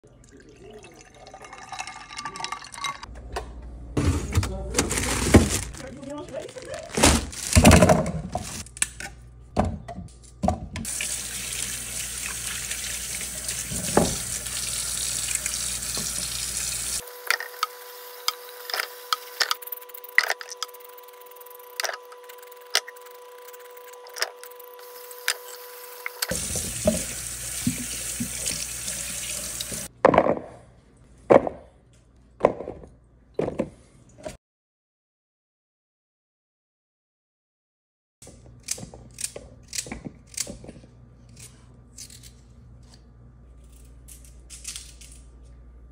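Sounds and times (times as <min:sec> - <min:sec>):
faucet running into steel sink: 0:10.9 - 0:17.0, 0:26.0 - 0:29.9.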